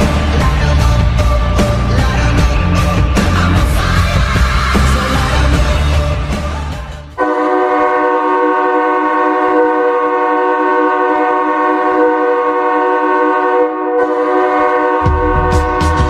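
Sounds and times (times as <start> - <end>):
ice hockey goal horn: 7.2 - 16.0.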